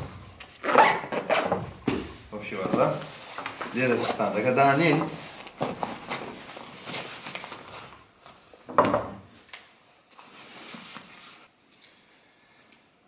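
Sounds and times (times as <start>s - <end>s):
fabric rustling: 0.0s - 8.5s, 10.1s - 11.6s.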